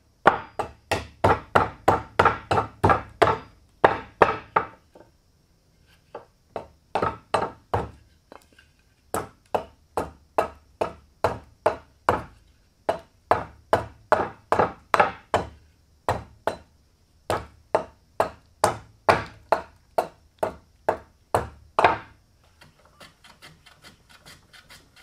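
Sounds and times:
hatchet chopping wood: 0:00.2 - 0:04.7, 0:06.6 - 0:08.0, 0:09.1 - 0:16.7, 0:17.3 - 0:22.2.

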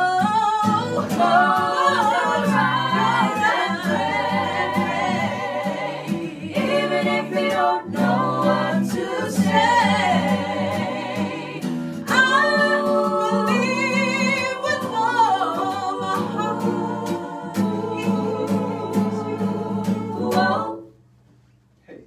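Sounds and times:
a cappella group singing gospel: 0:00.0 - 0:20.9.

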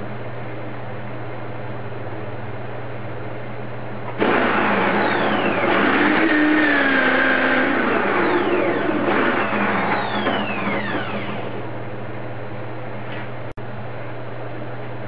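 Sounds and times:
electric drill boring into wood: 0:04.2 - 0:11.6.

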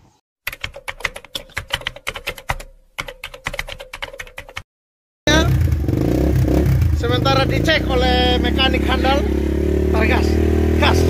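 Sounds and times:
keyboard typing clicks: 0:00.5 - 0:04.6.

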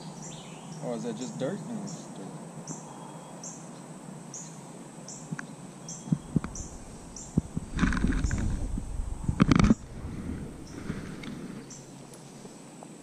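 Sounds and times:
low rumbling: 0:06.2 - 0:12.1
rustling burst: 0:06.4 - 0:12.0.

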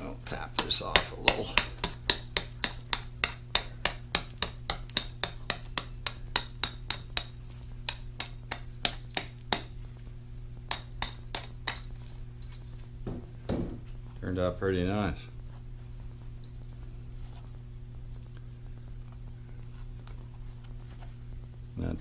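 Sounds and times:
small hammer tapping: 0:00.6 - 0:09.7, 0:10.7 - 0:11.9.

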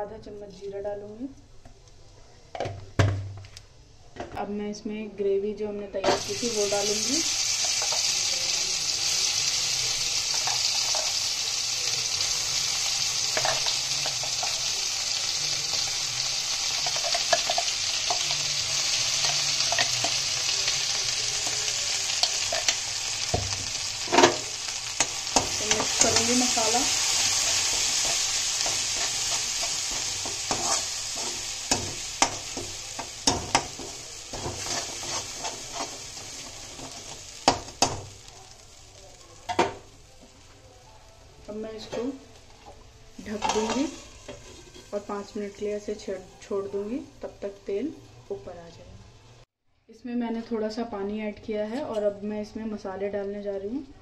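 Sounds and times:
sauce sizzling in oil: 0:06.0 - 0:49.6
spoon scraping pan: 0:24.1 - 0:37.2.

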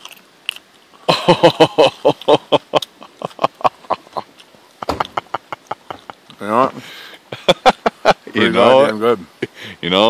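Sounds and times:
man laughing hard: 0:01.1 - 0:06.2, 0:07.2 - 0:08.3.

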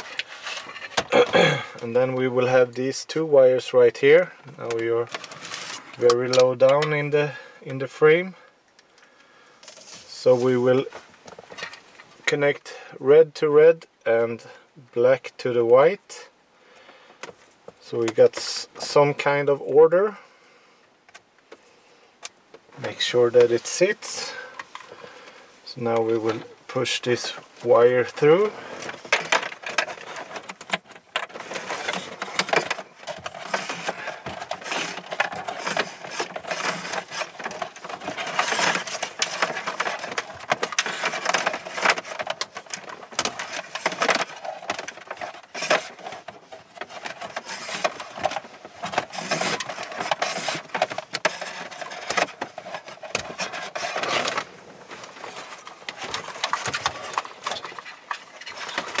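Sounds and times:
cables and plastic connectors rustling: 0:00.0 - 0:03.2, 0:03.8 - 0:12.6, 0:16.8 - 0:20.2, 0:21.1 - 0:59.0.

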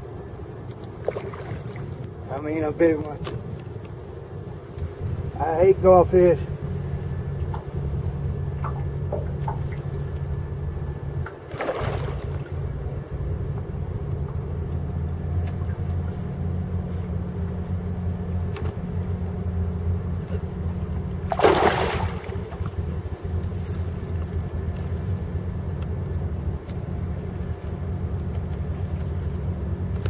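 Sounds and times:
low motor hum: 0:00.0 - 0:30.0
fish splashing at surface: 0:11.5 - 0:12.5, 0:21.3 - 0:23.0.

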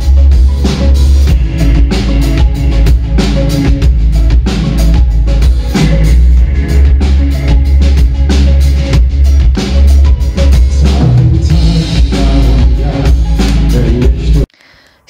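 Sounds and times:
electric guitar: 0:00.0 - 0:14.4
booming bass: 0:00.0 - 0:14.5
drum beat: 0:00.0 - 0:14.5
live synth-pop band playing: 0:00.0 - 0:14.5
man singing: 0:10.5 - 0:14.5.

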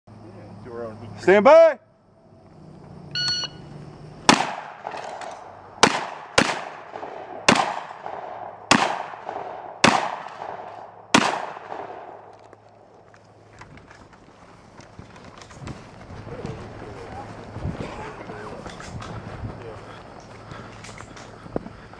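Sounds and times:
shot timer beep: 0:03.2 - 0:03.6
shotgun shots echoing: 0:04.3 - 0:12.3.

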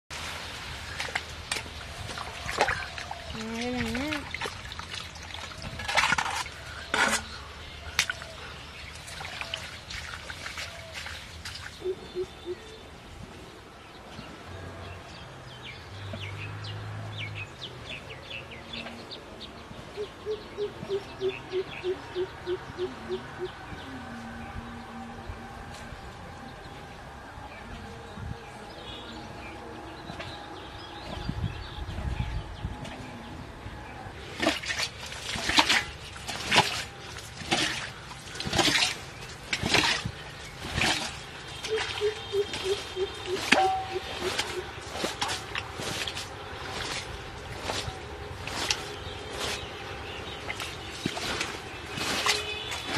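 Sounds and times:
water splashing in a ditch: 0:00.1 - 0:12.4, 0:34.1 - 0:52.9
birds chirping: 0:06.4 - 0:52.9
low bird hoots: 0:41.7 - 0:44.7.

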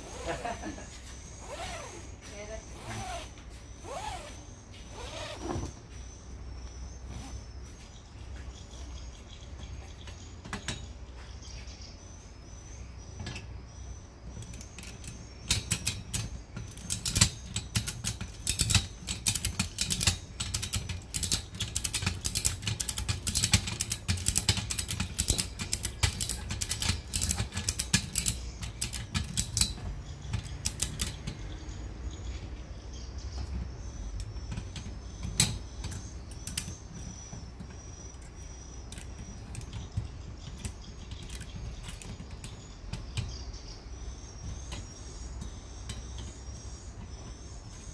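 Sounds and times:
ratchet buckle clicking: 0:14.4 - 0:31.3.

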